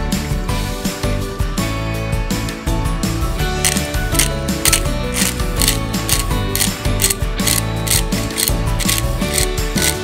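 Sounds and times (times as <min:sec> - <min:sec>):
pepper grinder ratcheting: 0:03.6 - 0:10.0.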